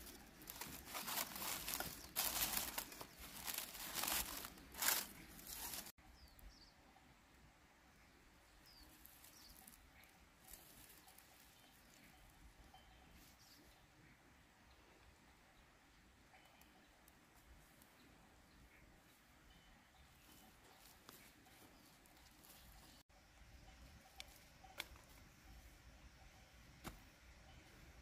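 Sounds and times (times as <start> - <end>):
dry sticks rustling and crackling: 0.0 - 5.9, 8.9 - 11.6.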